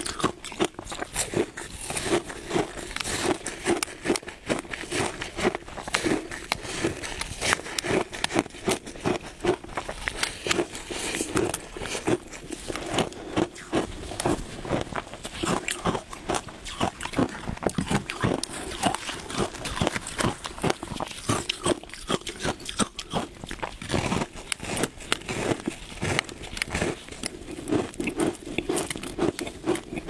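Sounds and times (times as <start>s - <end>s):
ice crunching being chewed: 0.0s - 30.0s.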